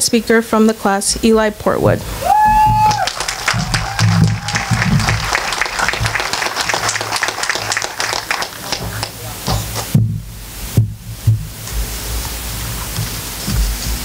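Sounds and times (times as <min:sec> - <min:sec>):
audience applauding: 0:02.2 - 0:09.9.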